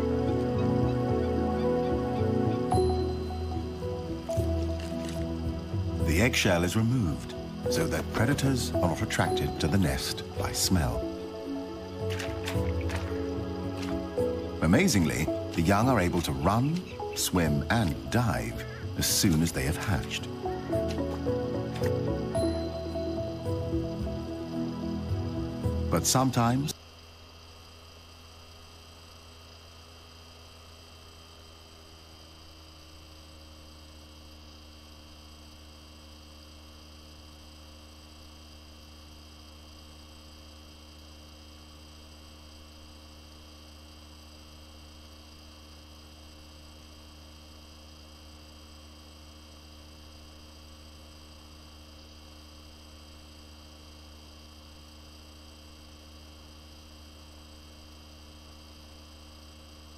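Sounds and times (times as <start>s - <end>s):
faint high steady tones: 0.0s - 32.1s
low electrical hum: 0.0s - 59.9s.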